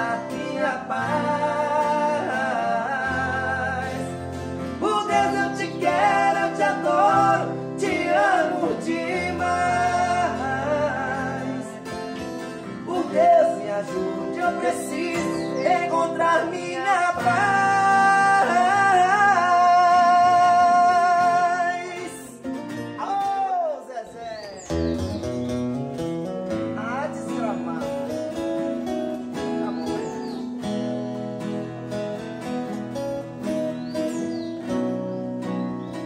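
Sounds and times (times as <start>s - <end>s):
men singing: 0.0s - 23.4s
acoustic guitars strumming: 0.0s - 36.0s.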